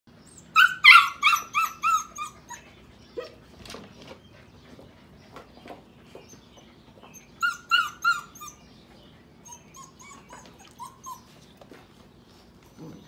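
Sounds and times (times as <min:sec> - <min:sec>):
puppies whining: 0:00.1 - 0:05.2, 0:06.0 - 0:13.0
puppies yipping: 0:00.2 - 0:03.6, 0:06.1 - 0:11.8.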